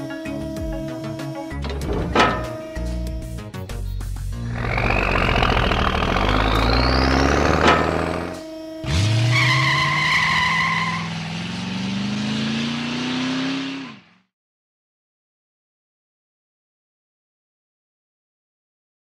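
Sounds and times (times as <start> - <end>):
cartoon truck engine revving: 1.6 - 3.5, 4.3 - 14.3
steady high tone: 1.9 - 3.5, 4.4 - 9.0.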